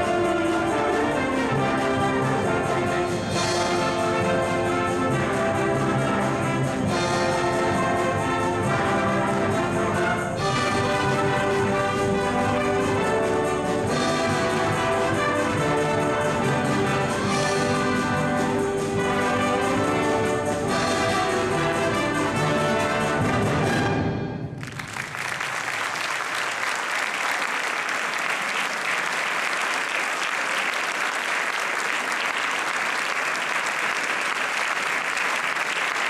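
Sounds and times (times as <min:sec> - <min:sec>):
concert wind band playing: 0:00.0 - 0:25.8
audience applause: 0:24.6 - 0:36.0.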